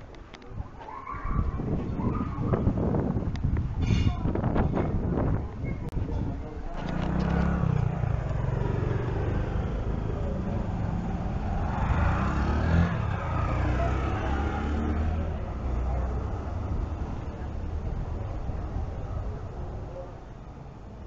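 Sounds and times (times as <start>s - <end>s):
road traffic rumbling: 1.4s - 21.0s
vehicle passing: 6.8s - 19.0s.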